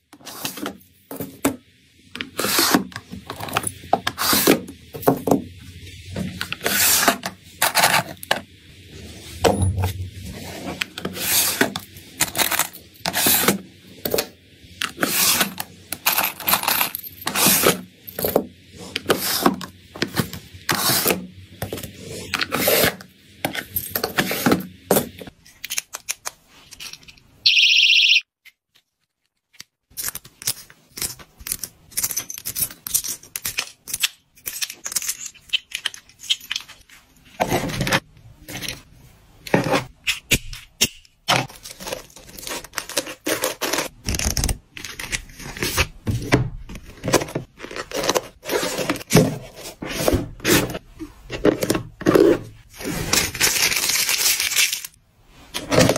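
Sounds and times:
brief high tone: 27.5s - 28.2s.

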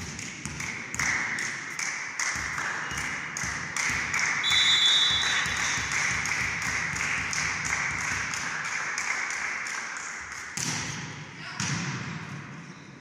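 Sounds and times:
referee's whistle: 4.4s - 5.9s.

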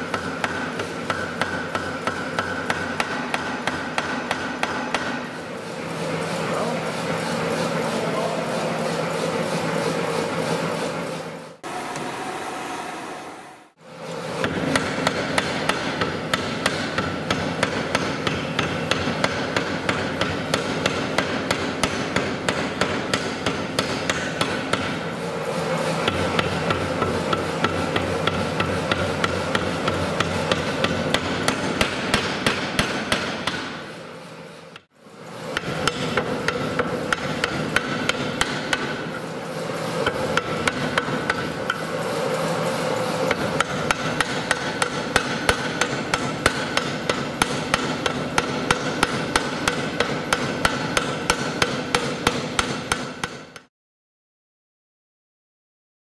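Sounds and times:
machine running: 5.3s - 16.4s, 24.6s - 52.0s
forging hammer blows: 14.3s - 34.1s, 34.7s - 53.7s.

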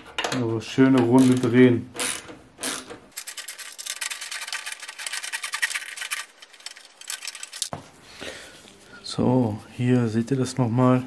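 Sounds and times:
ratcheting clicks: 1.2s - 7.7s.

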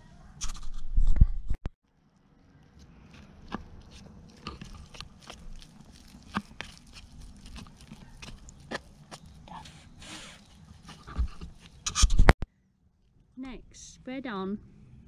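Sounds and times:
stick stirring thick silicone: 1.9s - 12.3s.

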